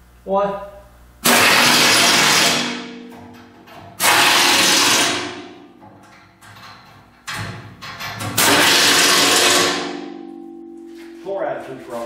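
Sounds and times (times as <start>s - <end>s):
pneumatic impact wrench: 1.2s - 5.6s, 6.5s - 10.0s.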